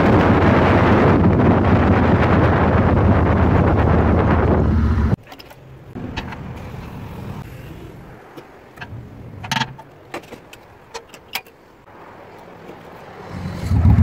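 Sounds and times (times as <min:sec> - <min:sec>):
wind rushing over microphone: 0:00.0 - 0:05.2
sharp clicks and knocks: 0:05.2 - 0:06.9, 0:08.3 - 0:11.6.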